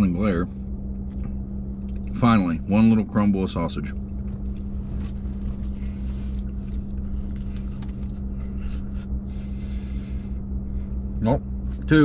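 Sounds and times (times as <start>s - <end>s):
truck engine idling: 0.0s - 12.0s
quiet chewing: 3.9s - 9.9s.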